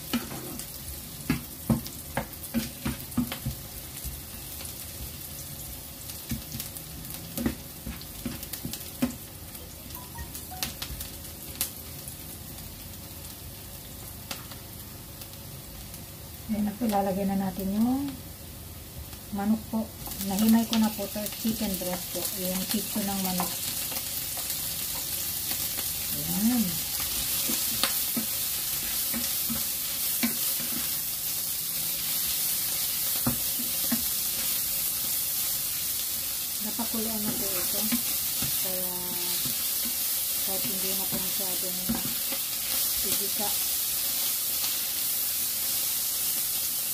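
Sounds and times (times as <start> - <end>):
garlic and onion sizzling in oil: 0.0 - 46.9
spatula knocking and scraping pan: 27.0 - 31.0.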